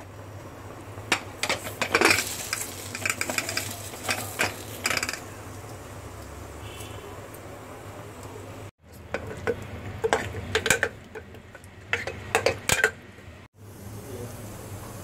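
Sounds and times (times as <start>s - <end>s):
metal spoon scraping pot: 9.1s - 13.0s.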